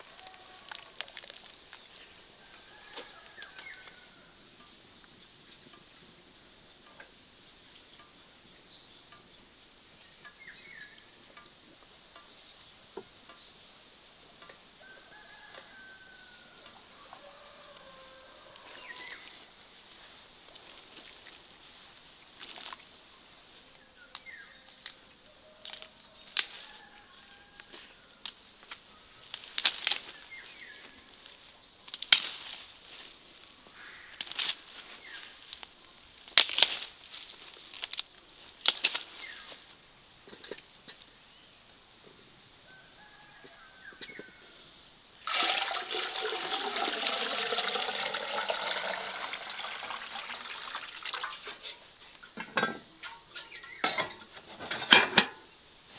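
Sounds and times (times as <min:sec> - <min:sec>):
water pouring: 0:00.0 - 0:01.9, 0:45.2 - 0:52.4.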